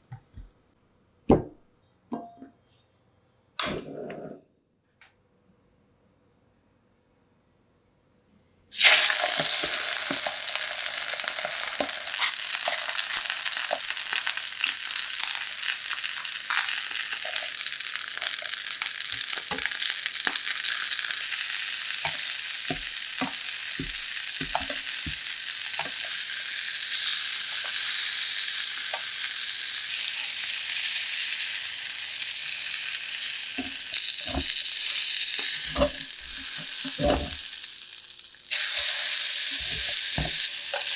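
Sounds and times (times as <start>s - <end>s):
fish sizzling in hot oil: 8.7s - 40.9s
metal utensils clinking on pan: 35.4s - 37.4s.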